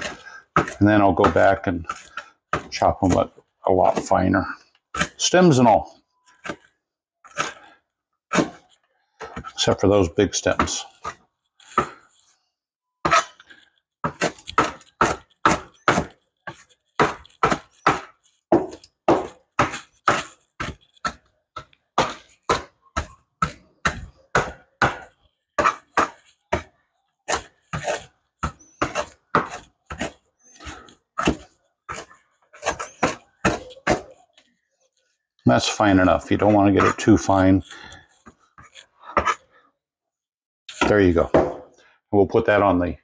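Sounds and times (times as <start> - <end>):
knife chopping parsley: 0.0 - 4.3, 14.0 - 21.2, 27.3 - 34.2, 36.0 - 37.7.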